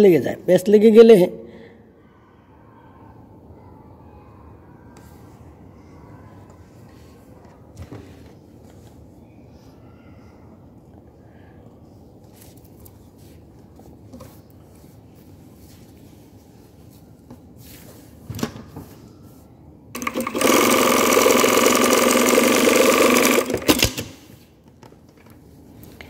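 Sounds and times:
sewing machine running at speed: 20.0 - 24.0.

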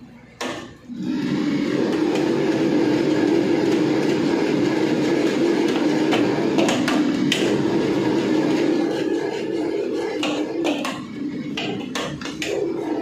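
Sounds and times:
gas burner roaring: 0.0 - 13.0
wok and ladle clanking: 8.6 - 13.0.

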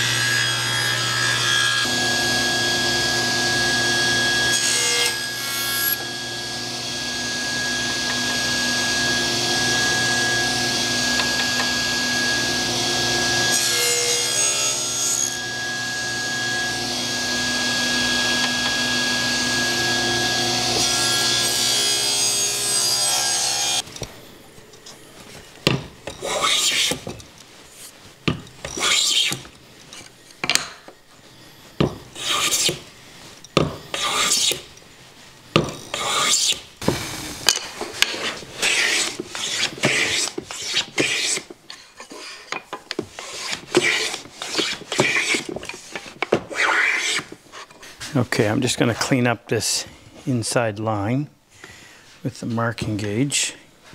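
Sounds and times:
table saw cutting plywood: 0.0 - 23.8, 26.1 - 27.2, 27.8 - 29.5, 31.8 - 32.9, 33.6 - 34.7, 35.6 - 41.5, 42.1 - 47.7
hand plane strokes on wood: 26.1 - 28.0, 28.6 - 29.5, 32.1 - 32.9, 33.9 - 34.7, 35.9 - 36.6, 37.8 - 48.2.

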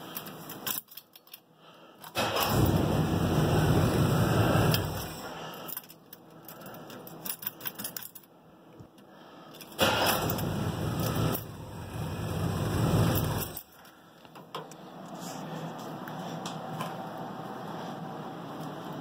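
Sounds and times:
keys jangling: 0.1 - 1.5, 5.6 - 8.3, 13.1 - 13.8
car engine running and starting: 2.1 - 5.4, 9.8 - 13.7.

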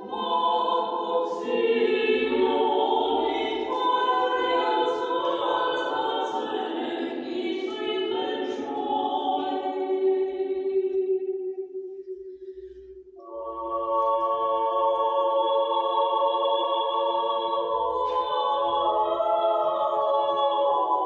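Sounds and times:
choir singing a cappella: 0.0 - 21.0.

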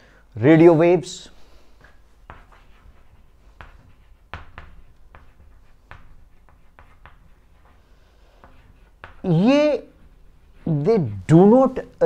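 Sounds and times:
chalk tapping and scratching on blackboard: 1.3 - 12.0.

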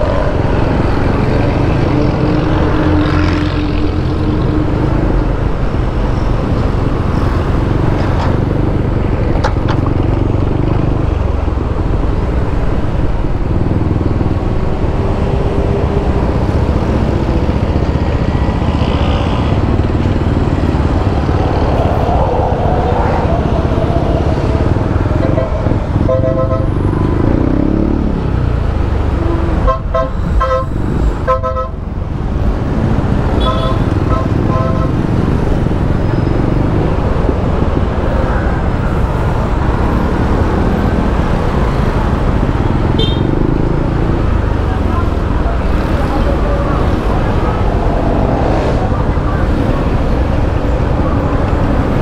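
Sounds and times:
wind noise on microphone: 19.3 - 26.8, 32.2 - 42.6.

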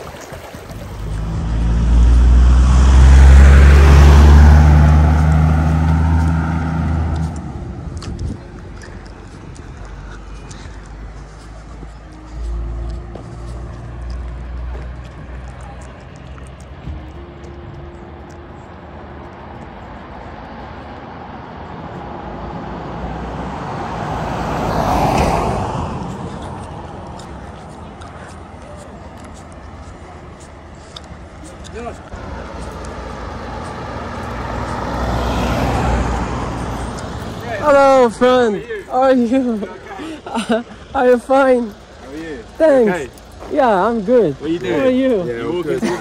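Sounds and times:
vehicle engine droning: 0.6 - 46.0.

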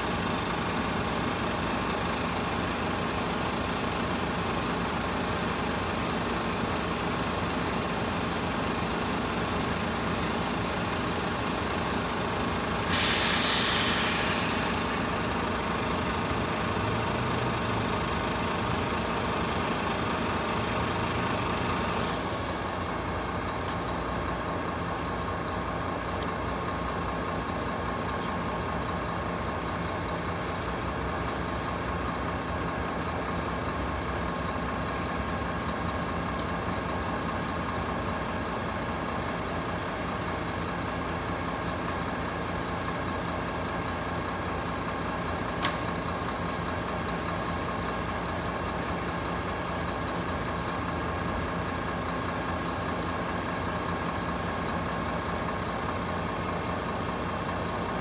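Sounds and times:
engine idling: 0.0 - 58.0
road traffic noise: 0.0 - 58.0.

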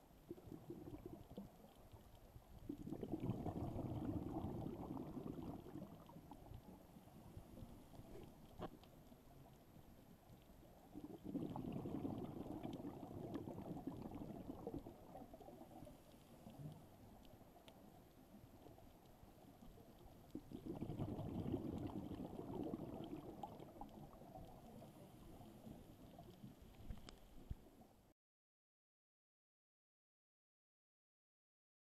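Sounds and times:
underwater exhaled bubbles: 0.1 - 27.8
faint crackling and clicks: 0.1 - 28.0.

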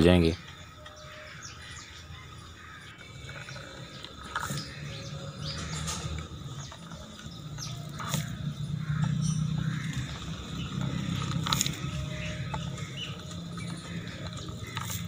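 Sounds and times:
pastry wheel rolling through dough: 2.6 - 15.0.

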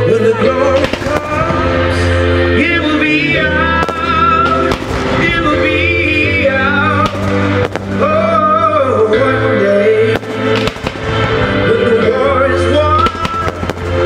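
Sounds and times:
music with melody: 0.0 - 14.0
firework shells bursting: 0.8 - 1.6, 3.8 - 5.4, 7.0 - 8.1, 10.2 - 11.2, 13.0 - 14.0.

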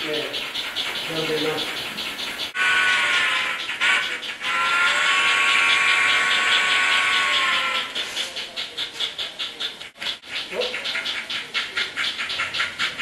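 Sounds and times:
steam locomotive whistle: 4.5 - 7.2.

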